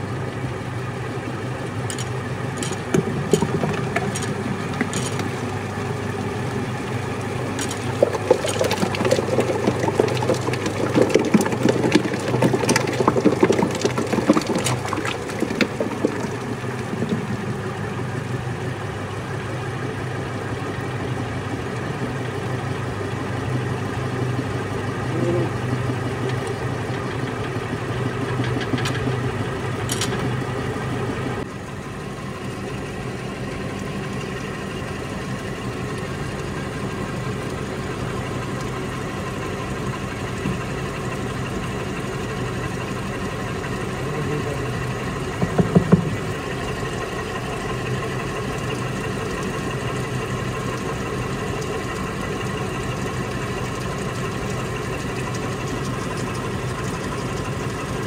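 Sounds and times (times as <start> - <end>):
paddle mixer humming: 0.0 - 58.0
clicks and rattles: 1.9 - 5.3, 7.6 - 17.5, 28.2 - 29.2, 29.9 - 30.4.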